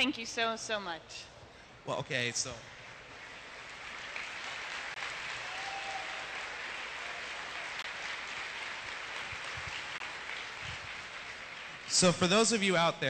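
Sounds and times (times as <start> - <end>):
audience applauding: 2.9 - 12.7.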